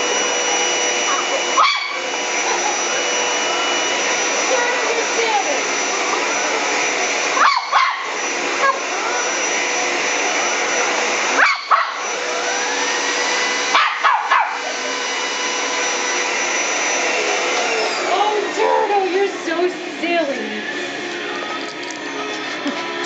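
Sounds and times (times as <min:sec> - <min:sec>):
vacuum cleaner motor whine: 0:00.0 - 0:23.0
dog barking: 0:01.1 - 0:02.1, 0:07.4 - 0:08.2, 0:11.3 - 0:12.0, 0:13.7 - 0:14.7.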